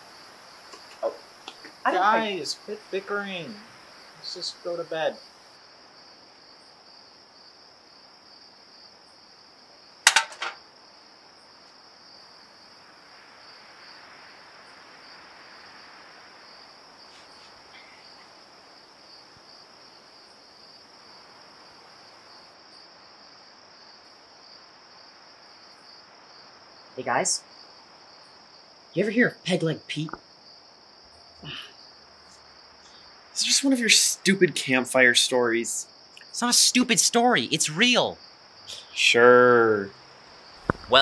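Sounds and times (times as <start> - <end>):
crickets chirping: 0.0 - 41.0
sharp knock: 10.1 - 10.6.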